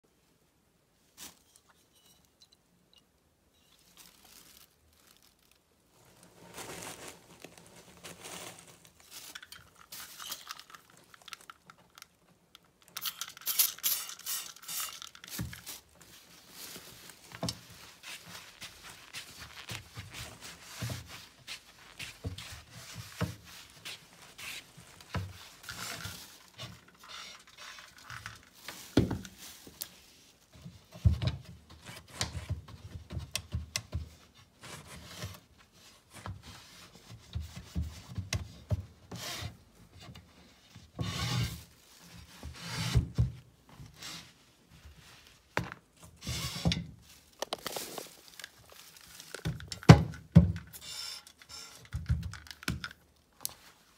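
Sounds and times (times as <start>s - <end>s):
rubbing and scraping on wood: 39.1s - 49.6s.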